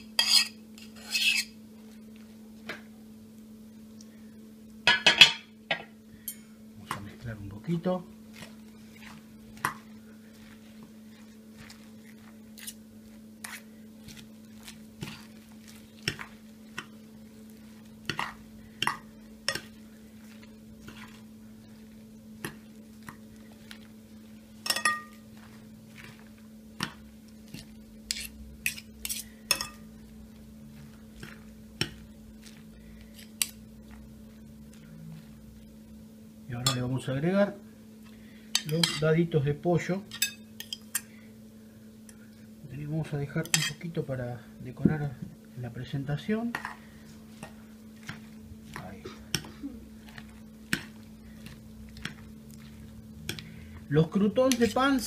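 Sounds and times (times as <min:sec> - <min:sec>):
steady low hum: 0:00.0 - 0:55.0
utensils clinking against glass bowl: 0:24.6 - 0:25.2, 0:43.4 - 0:43.8.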